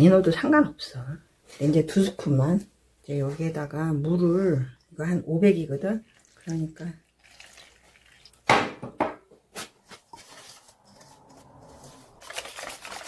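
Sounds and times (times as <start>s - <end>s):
water poured into steel bowl: 5.9s - 8.5s.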